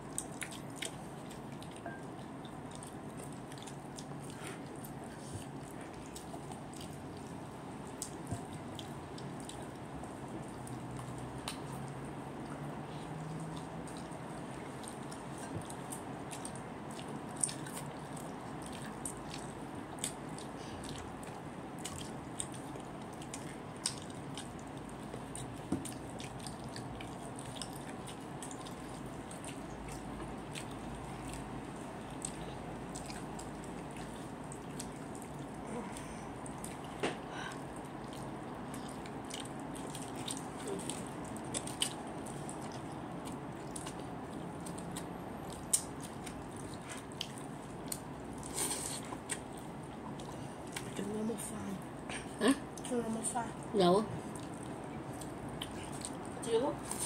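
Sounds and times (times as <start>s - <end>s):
soft chewing: 0.0s - 57.0s
steady background hum: 0.0s - 57.0s.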